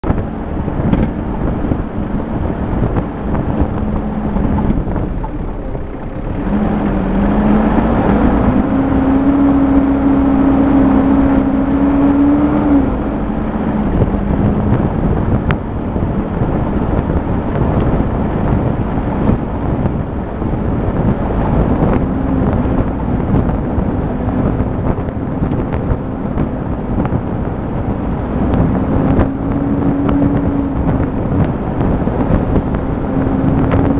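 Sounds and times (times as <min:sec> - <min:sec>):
vehicle engine running: 0:00.0 - 0:33.9
knocks and rattles: 0:00.1 - 0:01.8.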